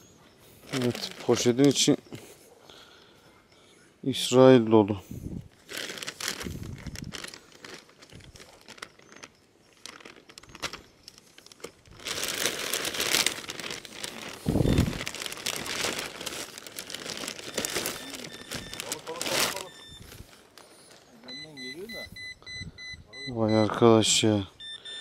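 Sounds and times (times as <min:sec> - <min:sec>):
plastic bag crinkling: 0:00.6 - 0:02.0, 0:05.5 - 0:21.3.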